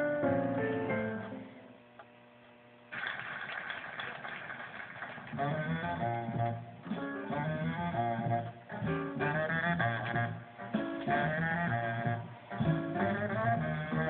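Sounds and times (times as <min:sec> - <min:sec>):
jazz on a radio: 0:05.1 - 0:14.0
saxophone: 0:05.3 - 0:14.0.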